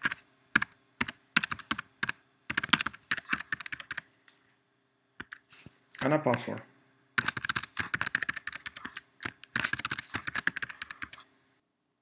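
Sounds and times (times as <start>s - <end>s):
typing on computer keyboard: 0.0s - 4.0s, 6.0s - 6.6s, 7.2s - 11.3s.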